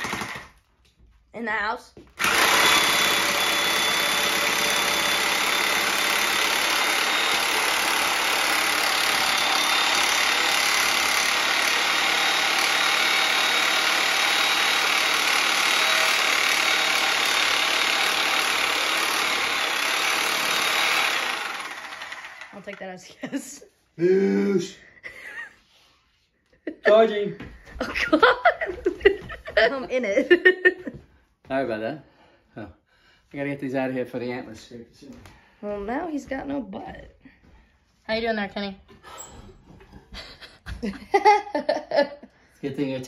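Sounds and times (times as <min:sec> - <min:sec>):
reciprocating saw cutting wood: 0:02.2 - 0:22.9.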